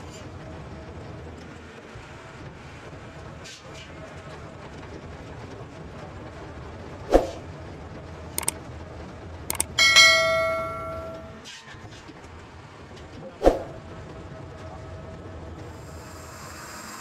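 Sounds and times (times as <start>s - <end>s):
mouse clicks: 9.5s - 9.8s
bell ding: 9.5s - 11.4s.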